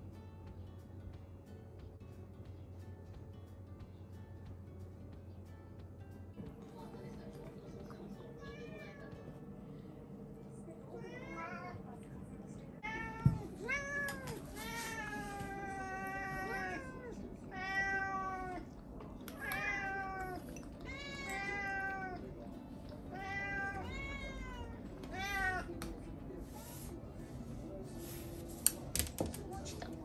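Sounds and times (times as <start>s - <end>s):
cats meowing: 12.8s - 25.8s.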